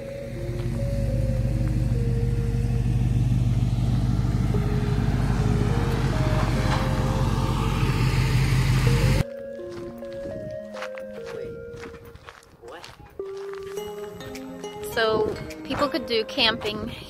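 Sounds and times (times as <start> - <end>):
pickup truck driving past: 0.0 - 9.2.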